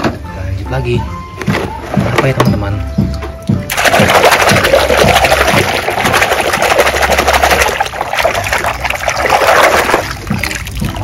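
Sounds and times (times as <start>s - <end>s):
water splashing in basin: 3.7s - 11.0s.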